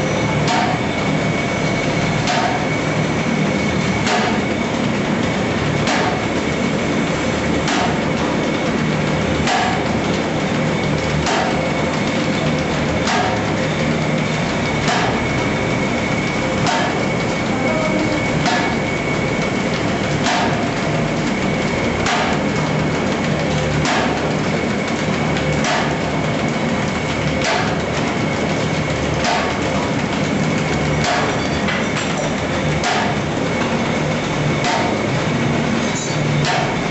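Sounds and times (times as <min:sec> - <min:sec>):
machine clattering: 0:00.2 - 0:36.9
sharp machine knock: 0:00.4 - 0:01.0, 0:02.2 - 0:02.8, 0:04.0 - 0:04.5, 0:05.8 - 0:06.4, 0:07.6 - 0:08.7, 0:09.4 - 0:10.0, 0:11.1 - 0:15.4, 0:17.8 - 0:20.8, 0:22.0 - 0:22.6, 0:23.7 - 0:24.3, 0:25.5 - 0:26.1, 0:27.2 - 0:28.2, 0:29.2 - 0:33.8, 0:34.6 - 0:35.1, 0:35.9 - 0:36.9.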